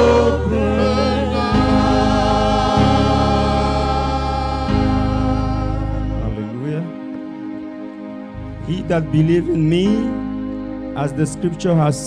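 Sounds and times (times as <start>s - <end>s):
gospel choir singing: 0.0s - 8.6s.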